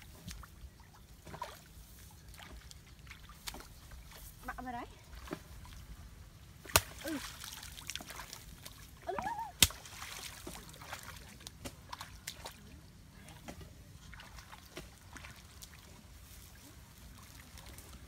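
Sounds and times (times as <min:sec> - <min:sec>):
splashing in shallow water: 0:00.0 - 0:18.0
stick smacking water: 0:06.6 - 0:12.6
person exclaiming: 0:09.1 - 0:09.6.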